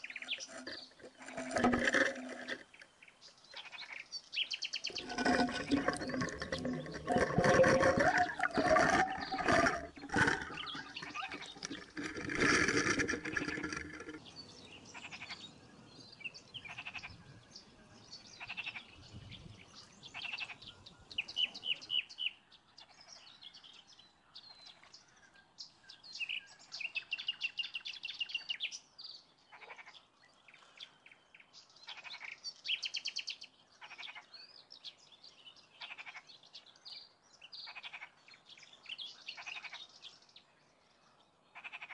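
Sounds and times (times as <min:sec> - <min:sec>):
water churning and bubbling: 0:00.0 - 0:02.8, 0:04.9 - 0:14.3
birds chirping: 0:00.0 - 0:25.0.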